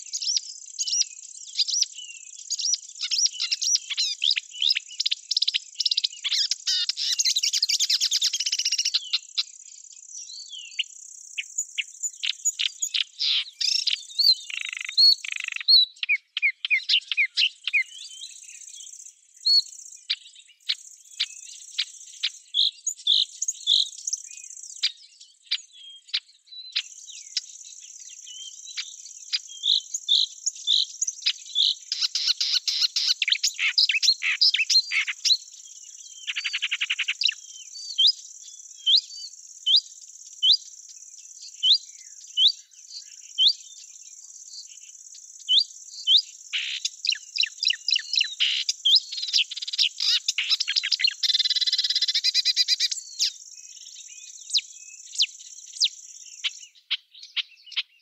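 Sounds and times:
small birds chirping: 0:00.0 - 0:58.0.

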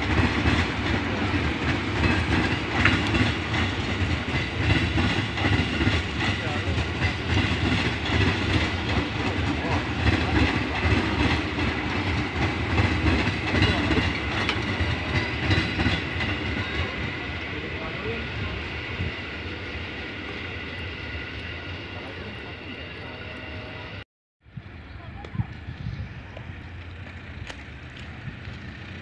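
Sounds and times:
wheels clacking over rail joints: 0:00.0 - 0:18.7, 0:26.3 - 0:29.0
electric train passing: 0:00.0 - 0:29.0.

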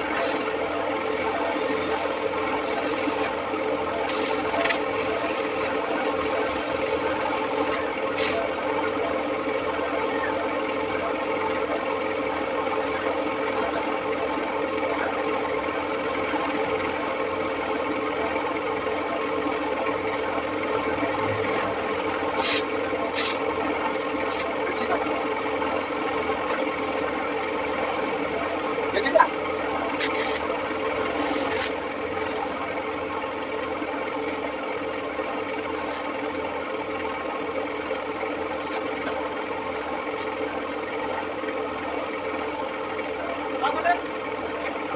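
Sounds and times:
machine droning: 0:00.0 - 0:44.9
rubbing and rasping on tyre: 0:21.6 - 0:24.6, 0:29.8 - 0:31.9, 0:35.3 - 0:36.1, 0:38.5 - 0:39.0.

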